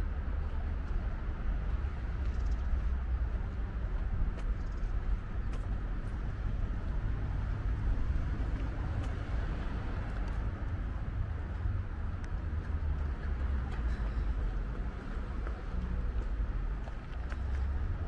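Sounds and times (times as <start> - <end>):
distant city traffic rumble: 0.0 - 18.0.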